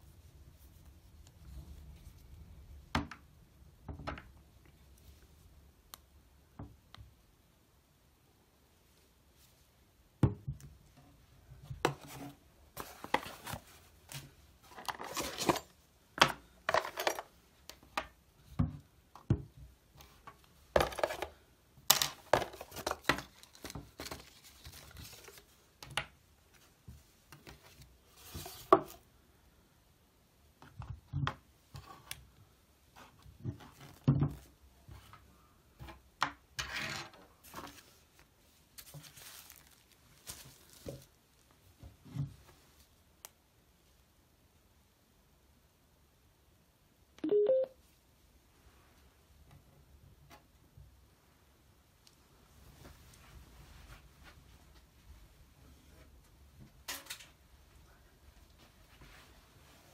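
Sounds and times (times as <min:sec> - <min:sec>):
packaging rustling: 0:22.1 - 0:25.5, 0:38.8 - 0:41.4.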